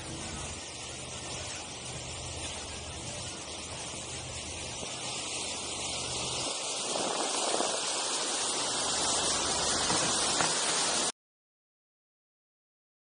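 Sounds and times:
boat wake rushing: 0.0 - 11.1
wind noise on microphone: 0.0 - 11.1.

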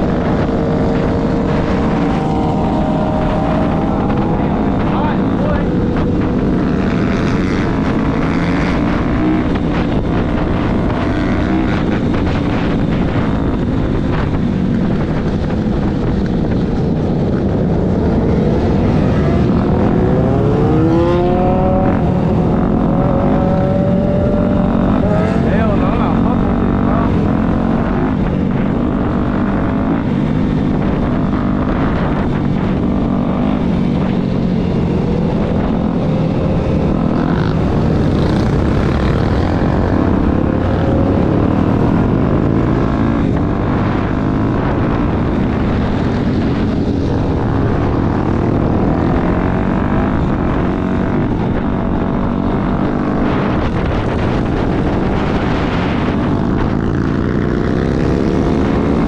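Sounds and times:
dirt bike engine revving: 0.0 - 14.3, 17.5 - 59.0
wind and road noise: 0.0 - 59.0.

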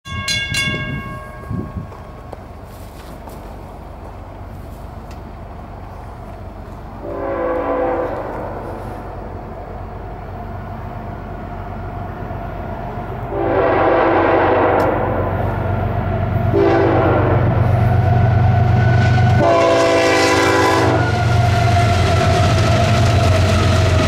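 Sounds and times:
locomotive engine rumble: 0.1 - 24.0
train air horn blasts: 7.0 - 9.6, 13.3 - 15.4, 16.5 - 23.2.

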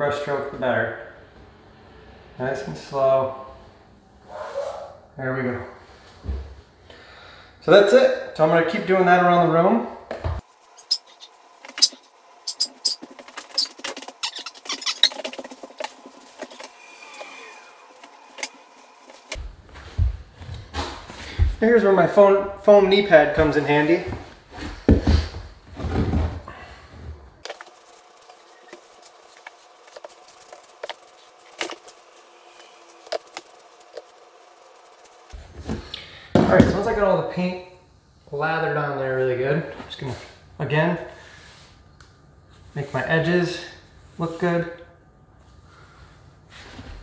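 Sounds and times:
paint pail and brush clicking: 27.4 - 35.3.

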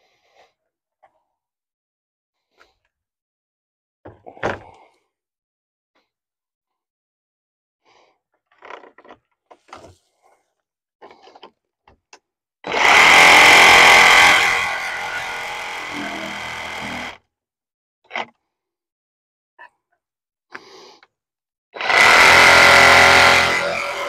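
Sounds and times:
power tool running: 12.7 - 17.2, 21.8 - 24.0.

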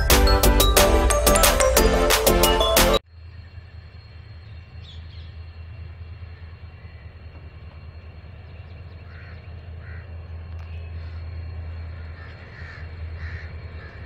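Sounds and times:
diesel locomotive engine drone: 0.0 - 14.0
faint bird calls: 6.3 - 14.0.

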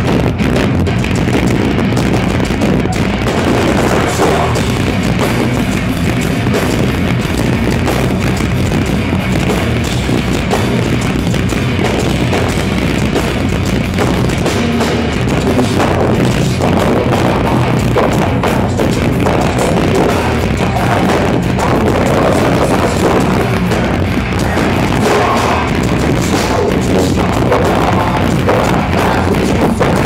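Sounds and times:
metal band playing live: 0.0 - 30.0.

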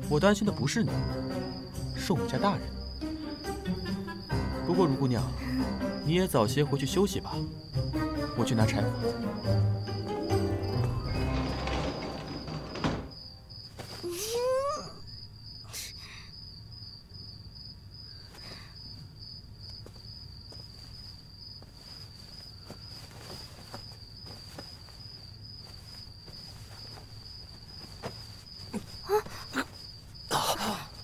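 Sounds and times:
crickets chirping: 0.0 - 31.0.

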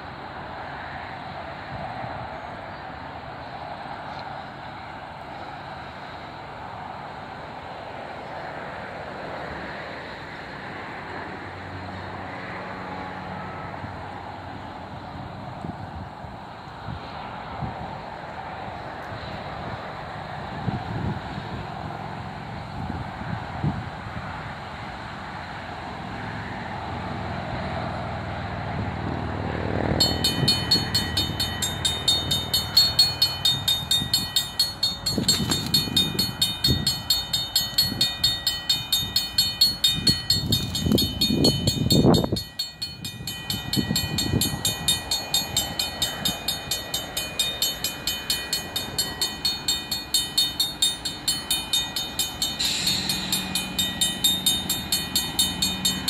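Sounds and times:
crossing bell ringing: 29.9 - 56.0.

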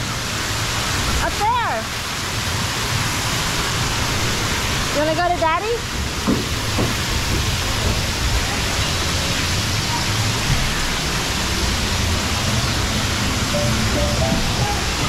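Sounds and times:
hiss of spraying water: 0.0 - 15.0.

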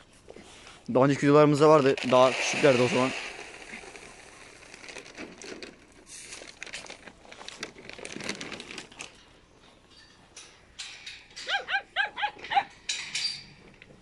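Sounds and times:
crinkling and rustling: 0.0 - 11.7
dog barking: 11.4 - 12.7.

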